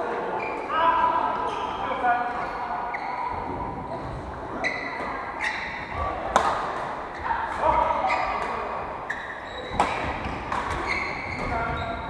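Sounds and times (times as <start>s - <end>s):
faint voices: 0.0s - 12.0s
shoes squeaking on wooden floor: 2.4s - 6.2s, 7.1s - 12.0s
racket striking shuttlecock: 6.3s - 6.8s, 9.8s - 10.9s.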